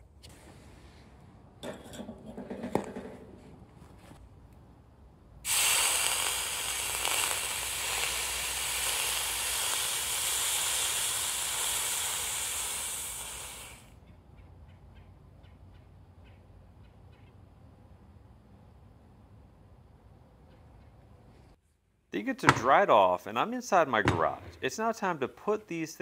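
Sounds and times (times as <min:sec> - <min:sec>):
hot metal sizzling in water: 0:05.5 - 0:13.9.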